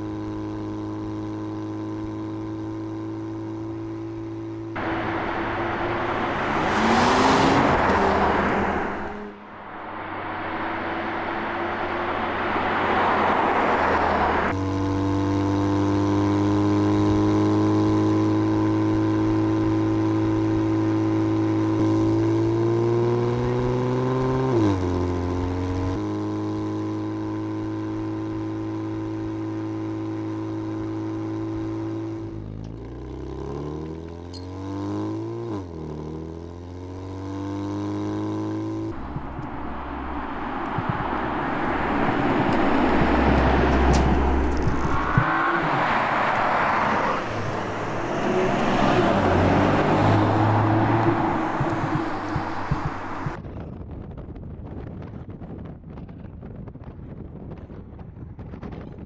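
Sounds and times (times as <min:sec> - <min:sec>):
car engine accelerating: 0:00.0 - 0:53.4
road and wind noise: 0:00.0 - 0:59.0.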